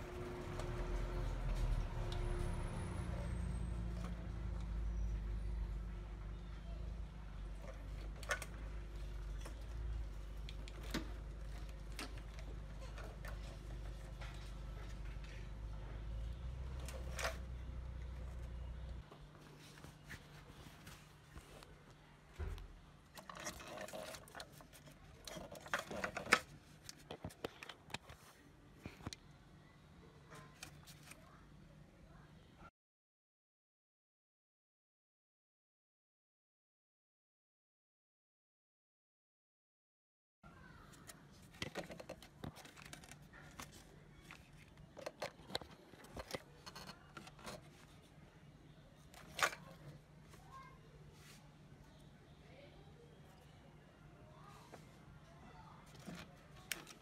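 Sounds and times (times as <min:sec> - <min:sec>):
hose clicks and scrapes: 0:23.1 - 0:28.2, 0:41.0 - 0:48.1.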